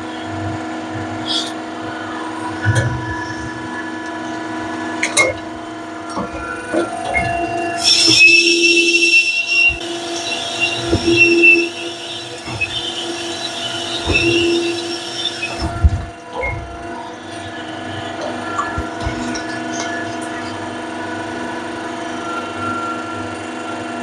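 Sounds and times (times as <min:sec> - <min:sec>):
quiet machine sound: 0:00.0 - 0:24.0
low pulsing tone: 0:05.9 - 0:21.0
high metallic squeal: 0:06.4 - 0:20.6.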